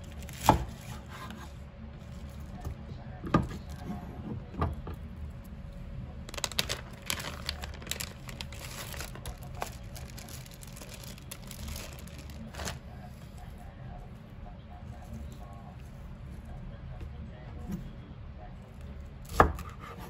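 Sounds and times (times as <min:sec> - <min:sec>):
plastic packaging crinkling: 0:06.3 - 0:12.8.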